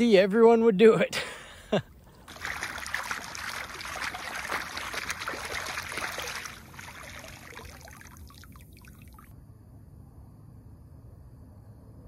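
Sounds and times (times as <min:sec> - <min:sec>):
feet splashing in water: 0:02.1 - 0:09.3.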